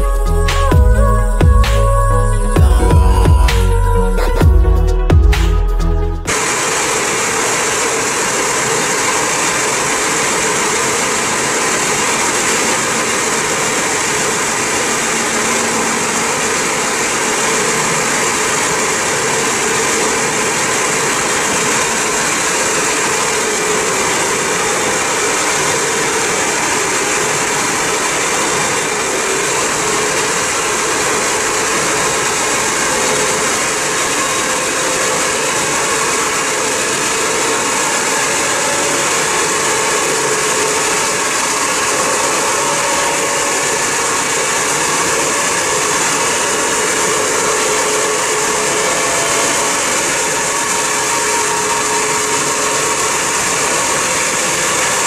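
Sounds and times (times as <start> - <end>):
loud rushing noise: 32.6 - 55.0.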